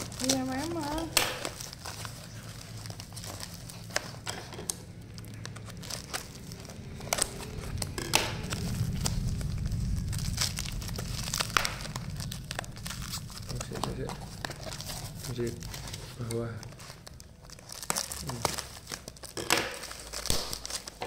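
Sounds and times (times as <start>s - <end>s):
bubble wrap crinkling: 0.0s - 21.0s
plastic tape being pulled: 0.0s - 21.0s.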